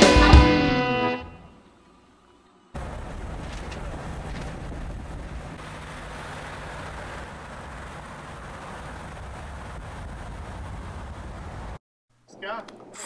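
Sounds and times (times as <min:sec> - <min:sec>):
wind and road noise in a car: 0:02.8 - 0:11.8.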